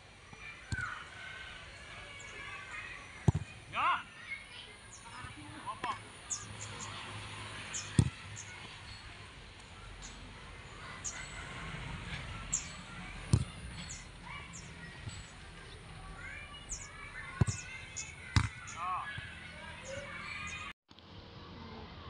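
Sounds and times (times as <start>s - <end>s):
football being kicked: 3.2s - 3.6s, 7.9s - 8.2s, 13.3s - 13.6s, 17.4s - 17.6s
bird chirps: 7.6s - 11.6s, 12.4s - 20.7s.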